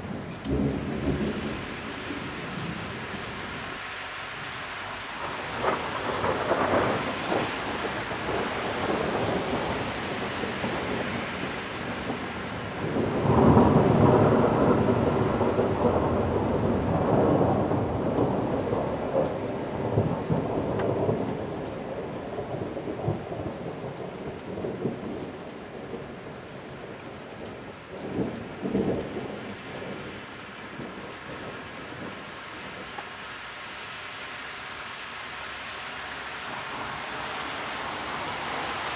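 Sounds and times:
thunder rumbling: 0:00.0 - 0:03.8, 0:04.4 - 0:33.2
steady rain: 0:00.0 - 0:38.9.

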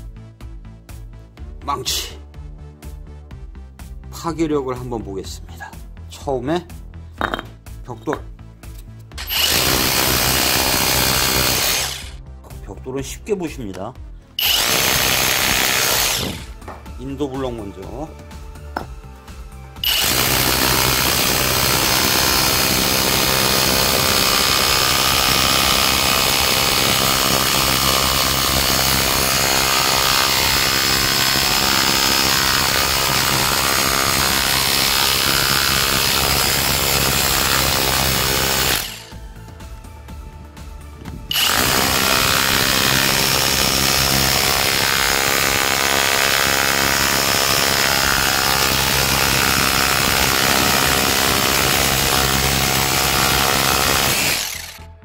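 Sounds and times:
rotary hammer chiseling concrete: 0:09.2 - 0:12.2, 0:14.4 - 0:16.6, 0:19.8 - 0:39.2, 0:41.3 - 0:54.9.

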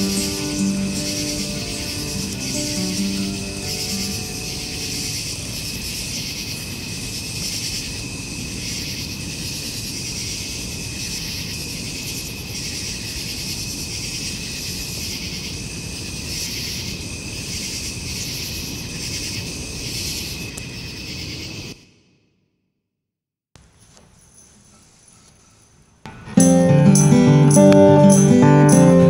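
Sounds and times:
crickets and insects chirping: 0:00.0 - 0:22.2, 0:23.8 - 0:29.0.

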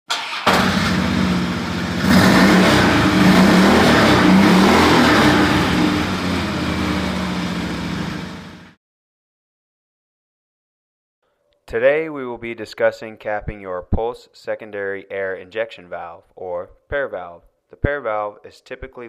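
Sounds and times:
motorcycle engine revving: 0:00.1 - 0:08.8.

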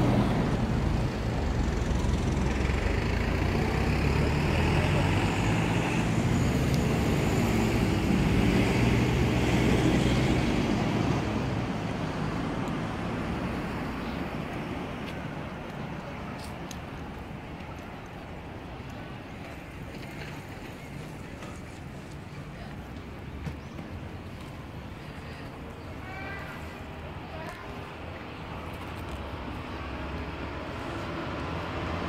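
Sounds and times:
traffic rumble: 0:00.0 - 0:32.0.

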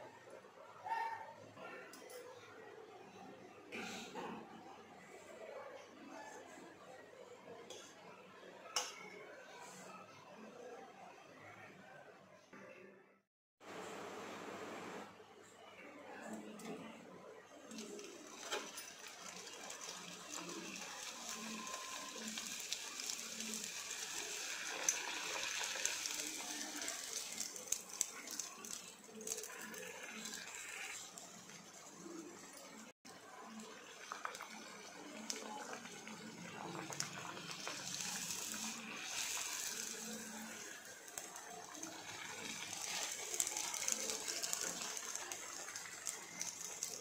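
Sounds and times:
hot oil sizzling and crackling: 0:17.7 - 0:47.0.

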